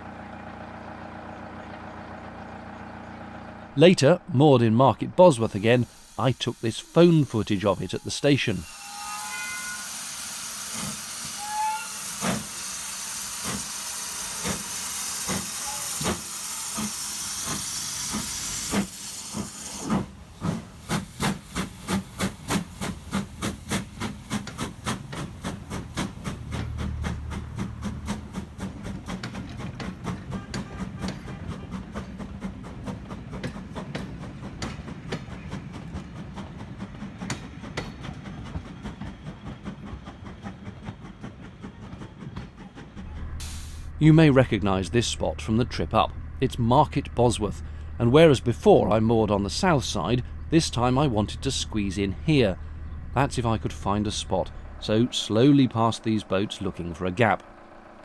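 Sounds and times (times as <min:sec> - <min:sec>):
low rumble of carriages: 0:00.0 - 0:08.5, 0:15.4 - 0:58.0
steam locomotive exhaust chuffs: 0:00.0 - 0:58.0
locomotive steam hiss: 0:04.4 - 0:45.4, 0:53.2 - 0:58.0.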